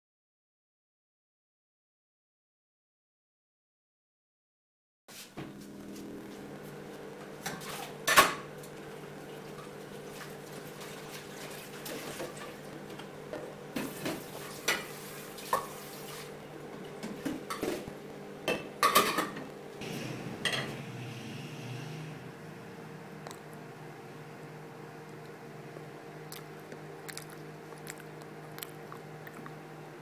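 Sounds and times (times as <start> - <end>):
steady low hum: 5.3 - 11.7, 16.4 - 30.0.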